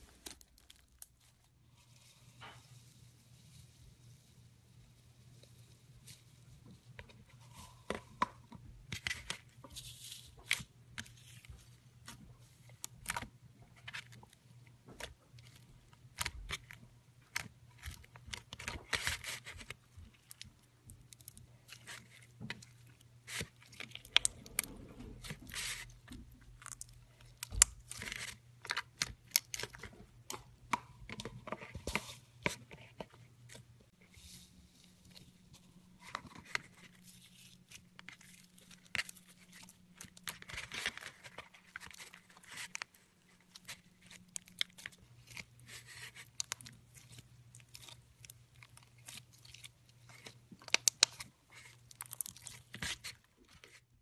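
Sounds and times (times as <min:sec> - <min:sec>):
slime crackling and popping: 0:43.6 - 0:53.2.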